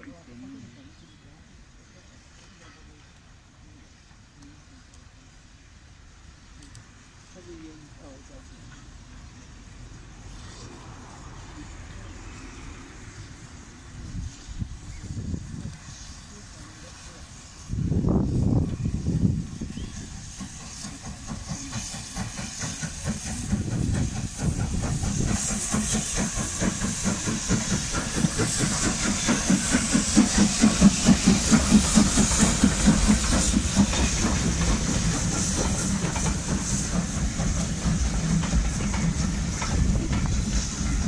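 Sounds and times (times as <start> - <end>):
steam locomotive chuffing: 4.6 - 41.0
drain cocks hissing: 19.9 - 41.0.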